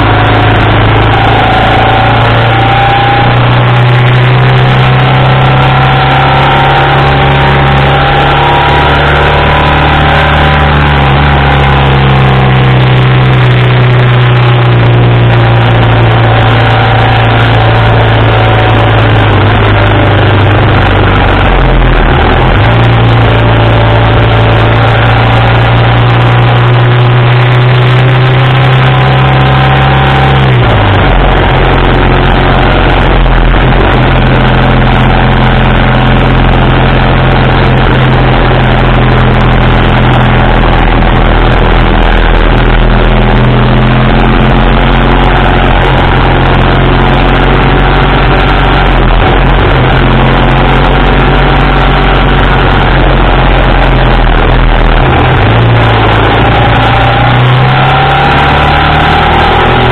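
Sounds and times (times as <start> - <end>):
motorcycle engine running: 0.0 - 59.9
wind and road noise: 0.0 - 59.9.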